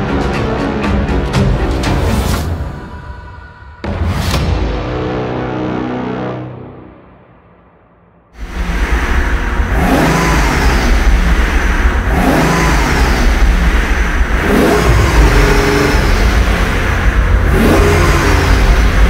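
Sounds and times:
car engine revving: 8.4s - 19.0s.

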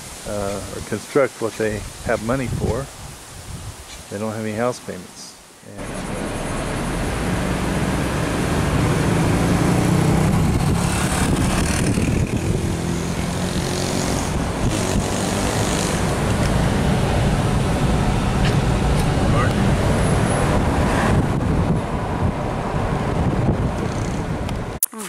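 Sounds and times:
vehicle engine and road noise: 5.8s - 24.8s.

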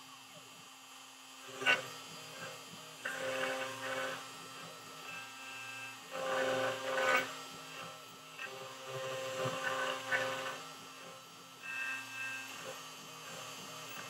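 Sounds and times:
machine whine: 0.0s - 14.0s
router spindle humming: 0.0s - 14.0s
bit scraping wood: 6.1s - 14.0s.

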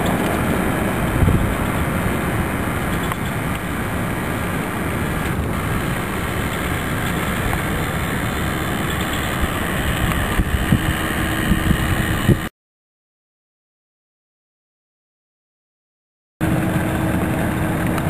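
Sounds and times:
outdoor rumble and hiss: 0.0s - 12.5s, 16.4s - 18.0s.

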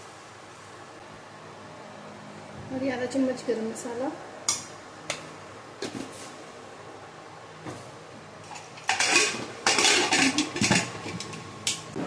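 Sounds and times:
metal pot lid clattering: 8.5s - 11.4s.

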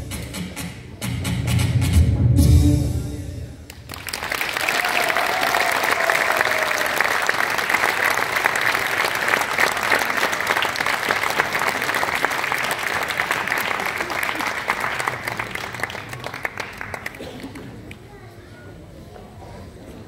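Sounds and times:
music: 0.0s - 3.8s
audience applauding: 3.7s - 18.0s.

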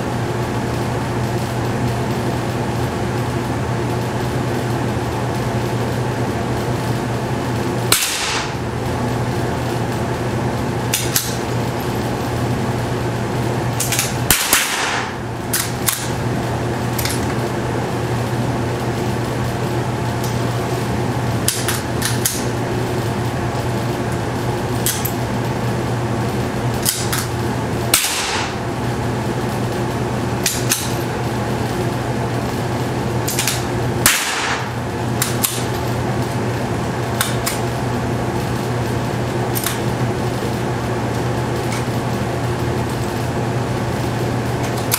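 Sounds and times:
ventilation hum: 0.0s - 44.9s
rifle shots: 7.9s - 8.5s, 14.3s - 15.2s, 28.0s - 28.6s, 34.0s - 34.7s.

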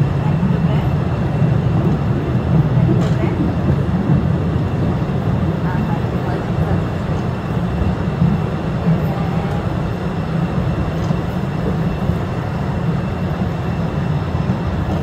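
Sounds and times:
train wheels rumbling: 0.0s - 15.0s.

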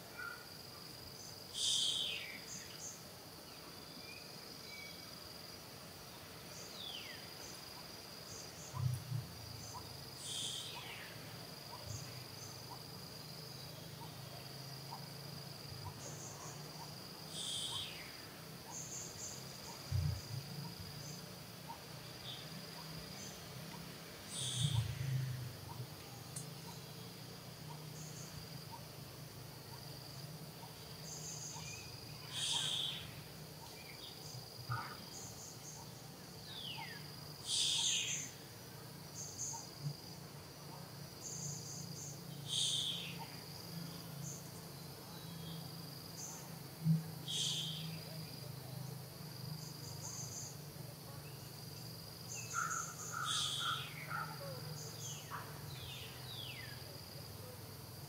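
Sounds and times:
high insect drone: 0.0s - 58.0s
bird call: 31.4s - 33.2s, 36.6s - 38.3s, 42.5s - 43.4s, 47.3s - 47.9s, 52.4s - 56.6s.

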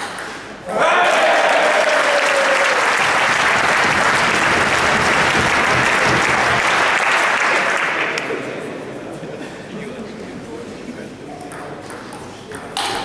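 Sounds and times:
crowd cheering: 0.7s - 8.4s
crowd applauding: 0.8s - 8.4s.

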